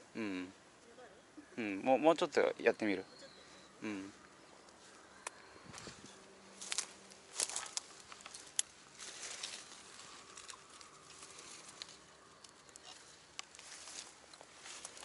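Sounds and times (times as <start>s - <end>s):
footsteps through leafy weeds: 5.7s - 12.1s, 12.8s - 15.0s.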